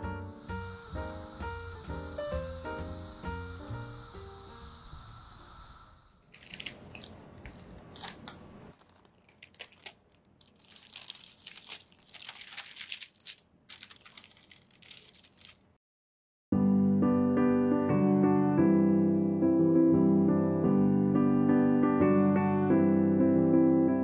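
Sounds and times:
piano music: 0:00.0 - 0:04.7, 0:16.5 - 0:24.0
cicada buzz: 0:00.0 - 0:06.3
baking paper crinkling: 0:06.3 - 0:15.8.

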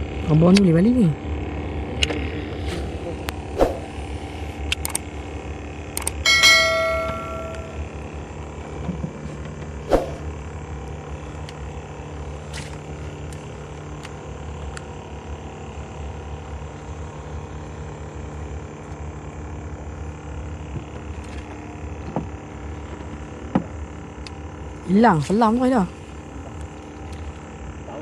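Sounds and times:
low rumble and hum: 0:00.0 - 0:27.8
sharp click: 0:06.0 - 0:06.2.

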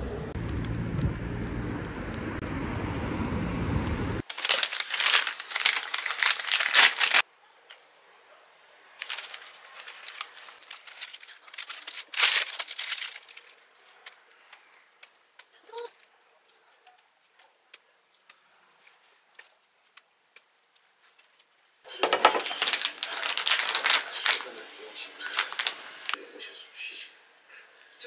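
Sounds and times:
paper wrapper crinkling: 0:04.2 - 0:07.2, 0:09.0 - 0:16.1, 0:18.1 - 0:26.2.

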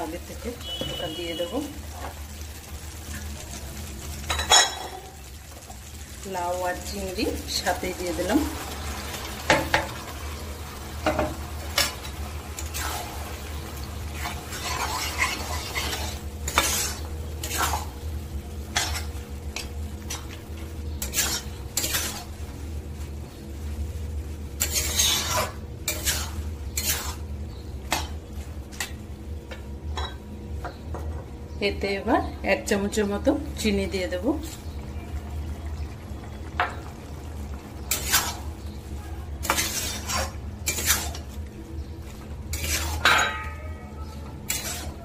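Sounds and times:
light sizzle: 0:00.0 - 0:45.0
spatula scraping a wok: 0:11.1 - 0:18.0, 0:18.6 - 0:22.5, 0:24.5 - 0:28.9, 0:37.8 - 0:38.7, 0:39.3 - 0:41.4, 0:42.3 - 0:45.0.

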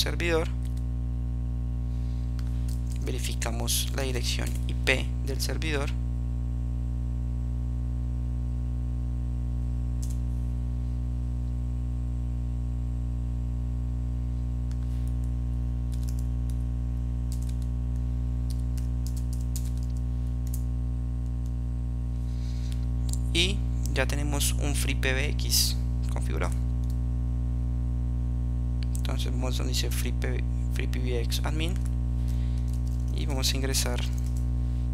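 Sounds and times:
low electrical hum: 0:00.0 - 0:34.9
computer keyboard typing: 0:15.9 - 0:16.6, 0:17.3 - 0:20.6, 0:32.6 - 0:33.2, 0:33.9 - 0:34.4.

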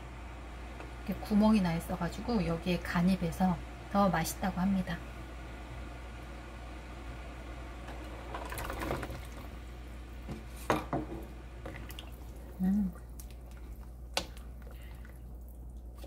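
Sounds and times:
liquid sloshing: 0:08.3 - 0:09.6, 0:11.6 - 0:16.0.

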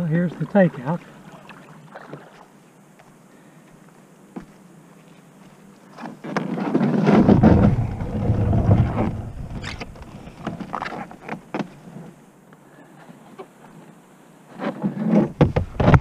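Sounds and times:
kayak knocking and bumping: 0:06.0 - 0:12.1, 0:14.7 - 0:16.0
plastic kayak hull scraping: 0:06.0 - 0:12.2, 0:14.5 - 0:16.0.

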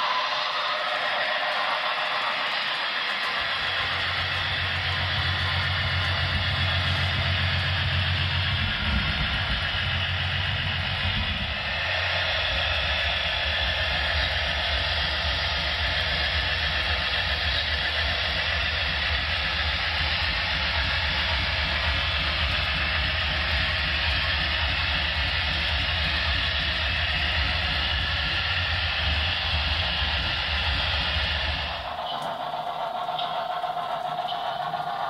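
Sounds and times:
model freight cars rolling on track: 0:00.0 - 0:35.0
model train diesel engine sound: 0:00.0 - 0:35.0.

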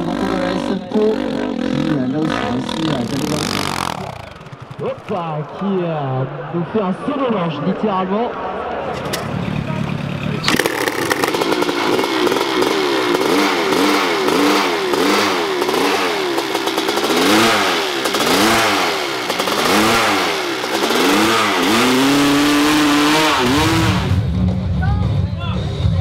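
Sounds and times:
dirt bike engine revving: 0:00.0 - 0:07.4, 0:08.5 - 0:24.9.

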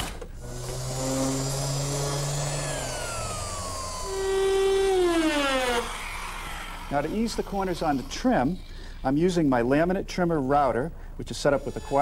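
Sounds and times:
trimmer router running: 0:00.0 - 0:08.1.

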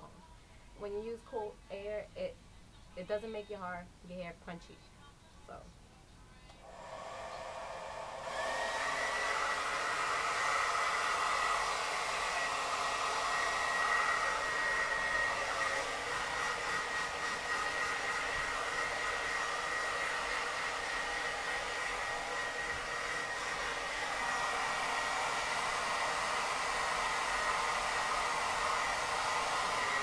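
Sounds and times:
hair dryer running: 0:06.6 - 0:30.0.

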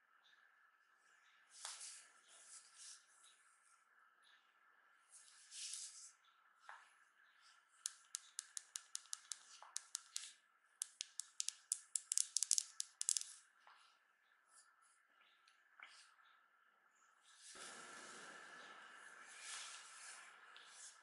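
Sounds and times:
smartphone clicks and taps: 0:07.9 - 0:13.3.

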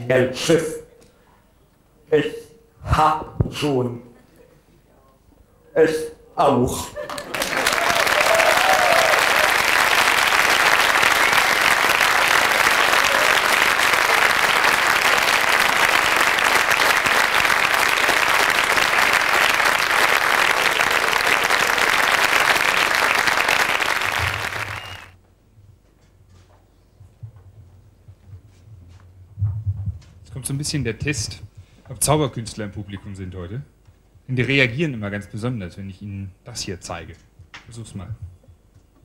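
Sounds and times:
audience applauding: 0:07.0 - 0:25.2.

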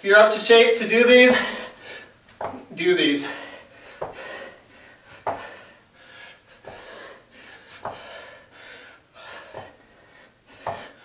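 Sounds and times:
man panting hard: 0:01.3 - 0:02.2, 0:03.2 - 0:11.0
shoes knocking on floor: 0:02.3 - 0:02.7, 0:04.0 - 0:04.2, 0:05.2 - 0:05.5, 0:07.8 - 0:08.0, 0:10.6 - 0:10.9.

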